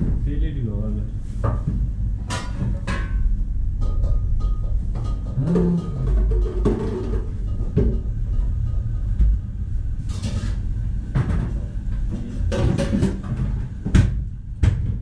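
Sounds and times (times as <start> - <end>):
steady low rumble: 0.0 - 15.0
pans and trays clattering: 3.9 - 8.0, 12.4 - 13.6.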